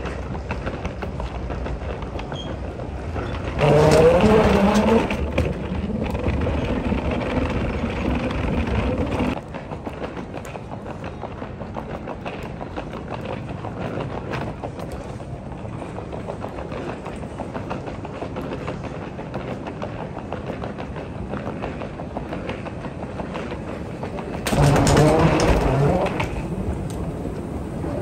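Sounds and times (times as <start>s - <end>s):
footsteps: 0.0s - 28.0s
moving walkway rumble: 0.0s - 28.0s.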